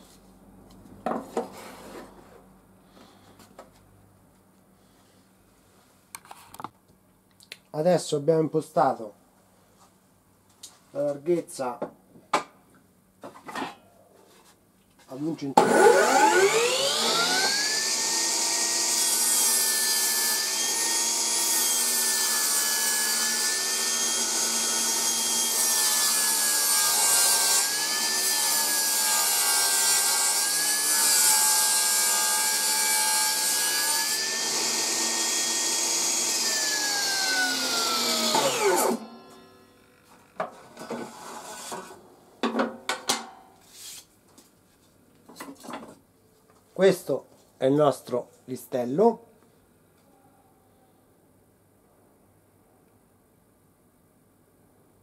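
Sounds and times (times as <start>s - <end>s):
saw blade cutting board: 15.6s - 39.8s, 40.4s - 42.0s
table saw motor whine: 15.6s - 40.0s.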